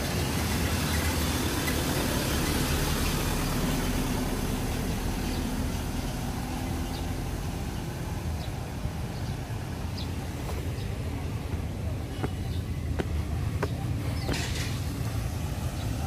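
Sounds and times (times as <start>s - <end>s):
diesel engine pulling away: 0.0s - 16.0s.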